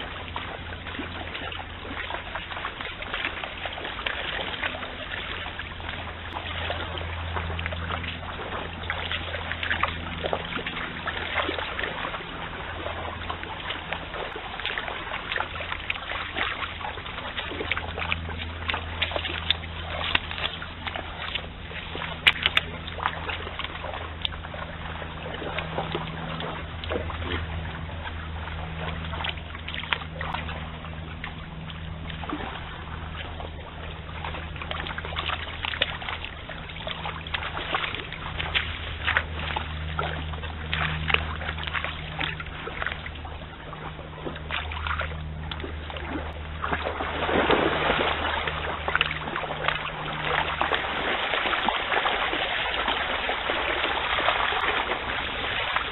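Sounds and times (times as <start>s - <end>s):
deer splashing in water: 0.0s - 55.9s
low hum: 0.0s - 55.9s
stream water trickling: 0.0s - 55.9s.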